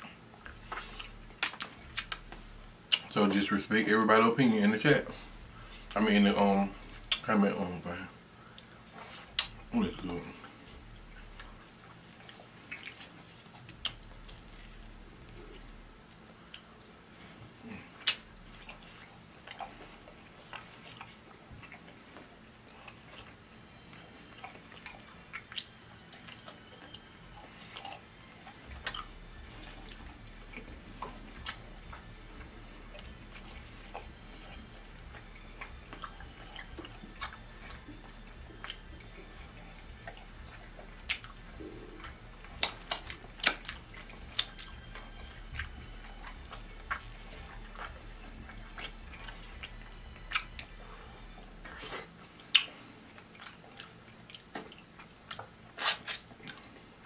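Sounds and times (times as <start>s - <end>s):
person chewing food: 0.0s - 3.2s, 5.0s - 7.3s, 8.2s - 57.0s
wet mouth clicks: 0.4s - 2.3s, 2.9s - 3.1s, 9.3s - 9.6s, 17.9s - 19.8s, 33.0s - 50.6s, 51.6s - 56.6s.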